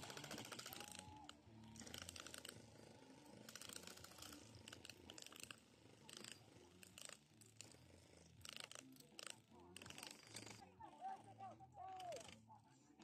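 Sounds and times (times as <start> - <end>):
faint airsoft gunfire bursts: 0.0 - 2.7.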